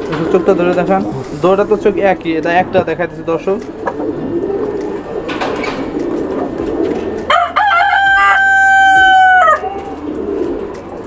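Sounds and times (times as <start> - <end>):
pigeons cooing: 0.0 - 11.0
rooster crowing: 7.3 - 9.8.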